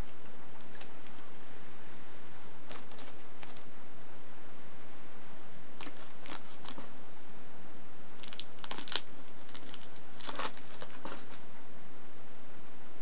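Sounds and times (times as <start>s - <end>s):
paper crinkling and tearing: 0.4s - 1.3s, 2.7s - 3.7s, 5.8s - 6.9s, 8.2s - 11.4s.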